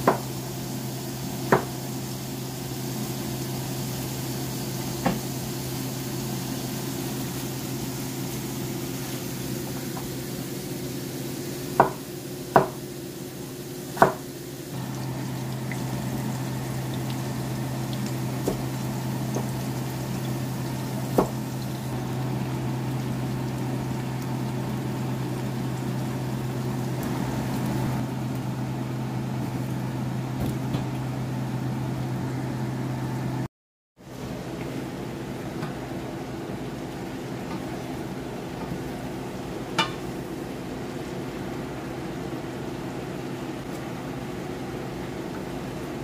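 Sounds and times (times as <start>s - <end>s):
food sizzling in oil: 0.0s - 30.3s
knife chopping on wooden board: 1.5s - 1.7s, 11.8s - 12.8s, 14.0s - 14.3s, 18.4s - 18.6s, 21.2s - 21.4s.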